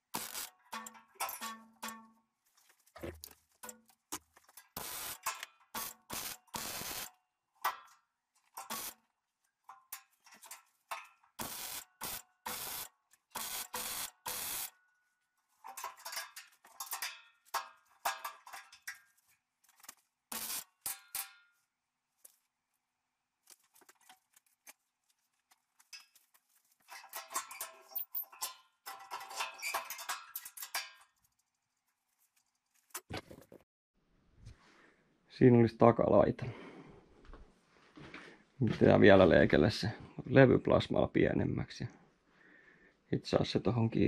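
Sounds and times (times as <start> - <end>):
welder crackling hiss: 5.8 - 7.1, 11.4 - 12.8.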